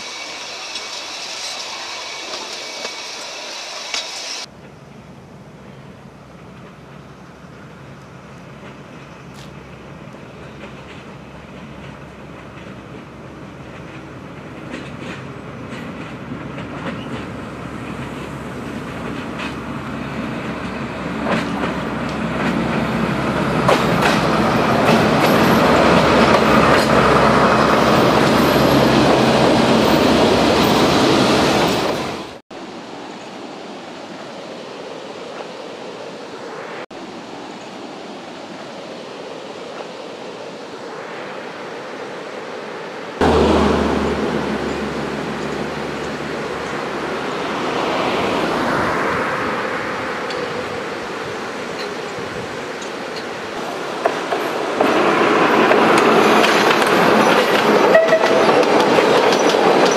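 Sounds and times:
diesel train passing: 0.0s - 59.9s
wheels clicking over rail joints: 10.4s - 29.6s, 51.7s - 59.9s
steady rushing noise: 16.0s - 59.9s.

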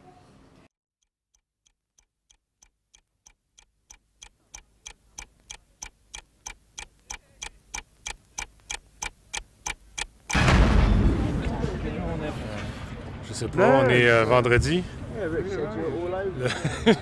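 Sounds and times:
regular ticking: 1.0s - 10.5s.

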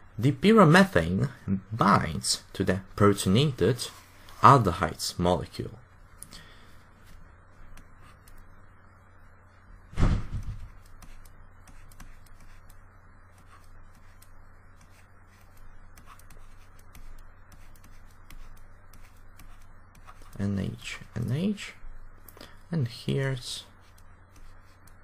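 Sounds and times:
low electrical hum: 0.0s - 25.0s
loud thump: 9.9s - 10.7s.

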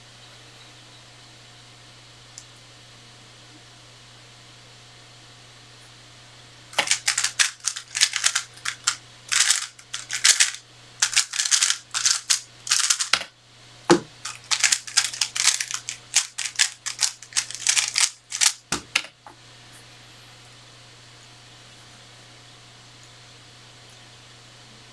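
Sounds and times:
thump: 13.9s - 14.1s.

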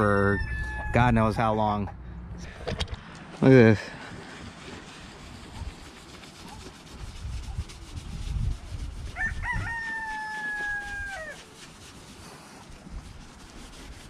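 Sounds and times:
rooster crowing: 0.2s - 1.1s, 9.2s - 11.4s.

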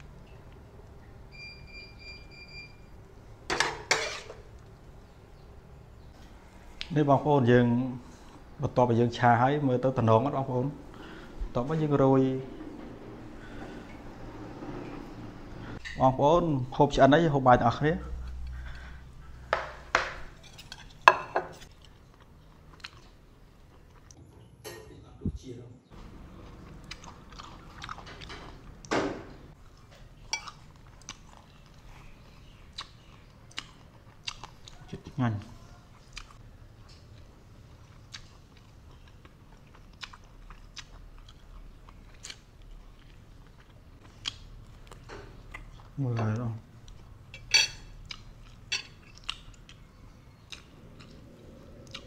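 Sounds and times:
person chewing: 21.6s - 24.2s, 26.4s - 28.7s, 29.6s - 46.0s, 46.8s - 52.0s.

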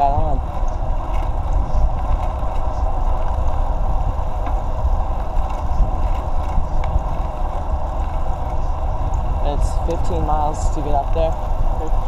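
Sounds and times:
bicycle tyre and road noise: 0.0s - 12.0s
wind rumble on microphone: 0.0s - 12.0s.

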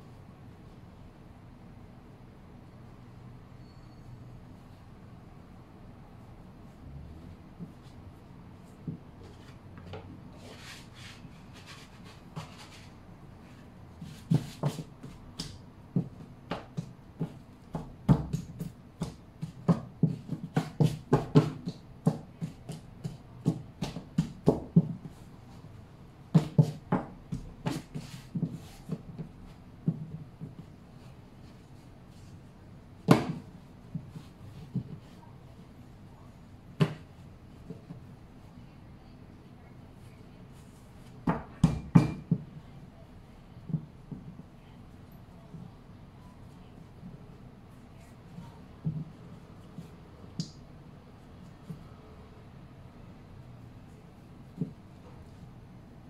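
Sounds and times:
hands patting bread dough: 13.9s - 25.2s, 26.2s - 31.1s, 33.0s - 35.2s, 48.7s - 50.7s.

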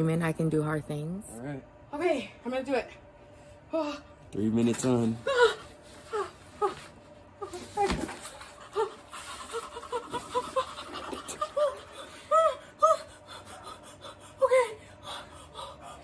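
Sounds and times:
woman whimpering: 3.7s - 4.1s, 5.2s - 16.0s
woman panting: 8.4s - 16.0s.

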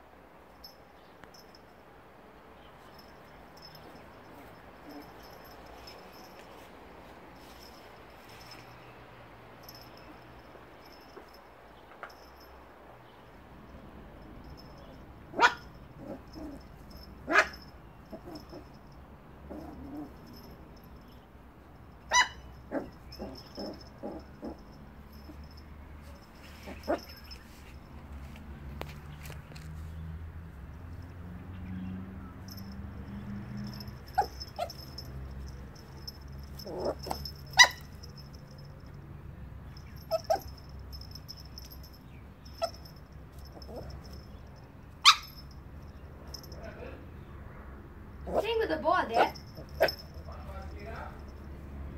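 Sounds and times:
puppy yapping: 15.3s - 16.6s, 17.3s - 18.7s, 22.1s - 24.6s, 33.7s - 35.1s, 36.5s - 38.1s, 39.8s - 40.6s, 45.0s - 45.4s
puppy yipping: 15.3s - 18.7s, 22.1s - 25.4s, 26.1s - 27.7s, 33.6s - 35.1s, 35.8s - 38.3s, 39.8s - 44.2s, 45.0s - 45.5s, 48.3s - 50.2s.

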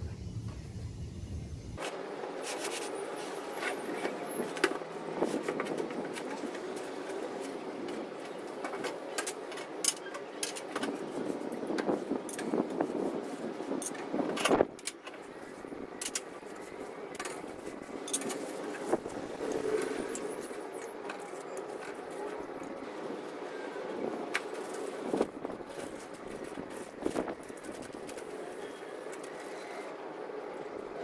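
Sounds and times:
cardboard and plastic rustling: 14.3s - 23.4s, 24.2s - 29.9s.

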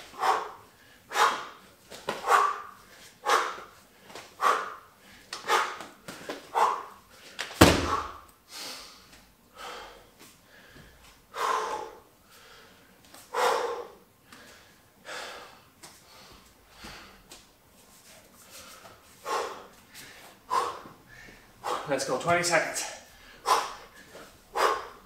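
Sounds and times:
person breathing hard: 0.0s - 17.3s, 18.4s - 22.0s, 22.7s - 25.0s
bag thudding onto gym mat: 7.6s - 8.2s.

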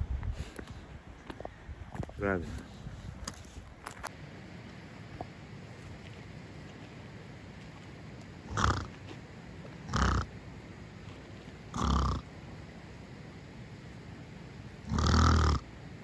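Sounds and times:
pig grunting: 8.4s - 9.1s, 9.8s - 10.4s, 11.6s - 12.4s, 14.8s - 15.7s.

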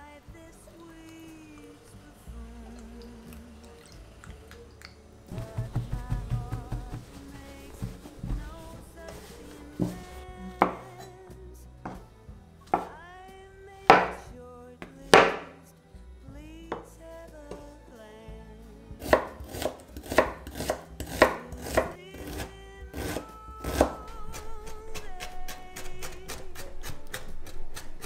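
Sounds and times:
soft background music: 0.0s - 28.0s
knife chopping on wooden board: 12.7s - 12.9s, 13.9s - 14.2s, 15.1s - 15.5s, 19.0s - 24.0s.

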